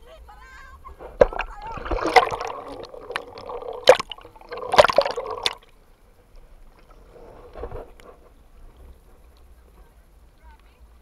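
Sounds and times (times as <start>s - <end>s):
water lapping: 0.6s - 5.8s
seawater sloshing and splashing: 0.9s - 5.7s.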